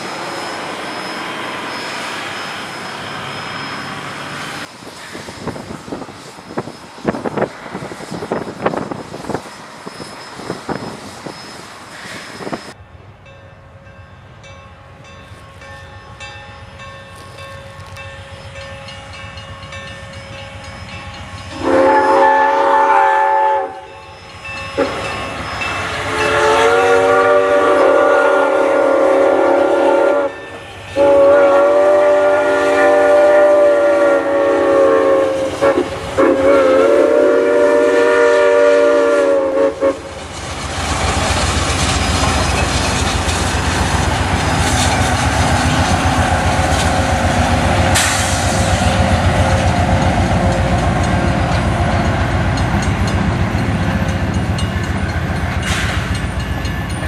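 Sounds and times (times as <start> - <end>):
steam train rumble: 0.0 - 57.0
steam locomotive whistle: 20.8 - 40.1.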